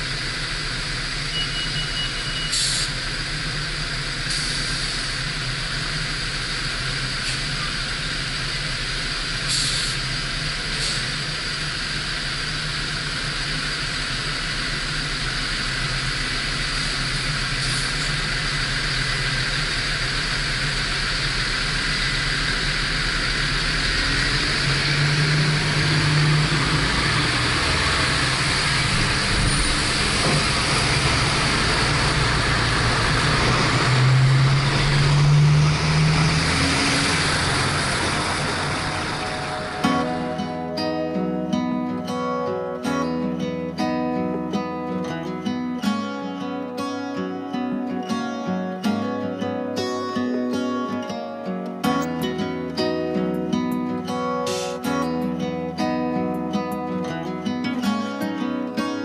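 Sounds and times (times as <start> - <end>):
road and tyre noise: 0.0 - 45.8.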